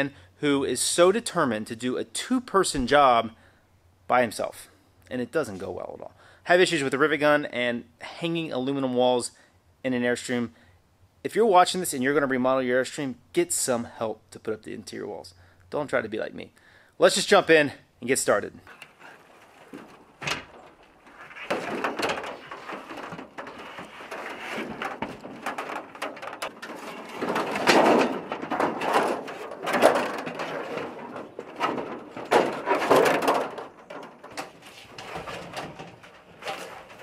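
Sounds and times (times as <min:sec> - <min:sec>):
metal panel rattling and bumping: 0:18.7 - 0:37.0.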